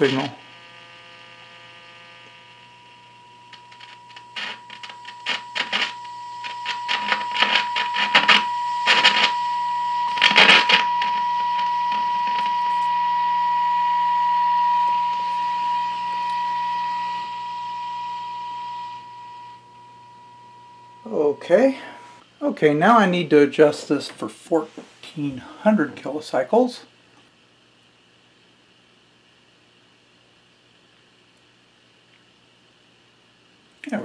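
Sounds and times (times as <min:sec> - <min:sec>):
low hum: 0:00.0 - 0:22.2
steady test tone: 0:00.0 - 0:24.6
crackling radio static: 0:00.0 - 0:26.7.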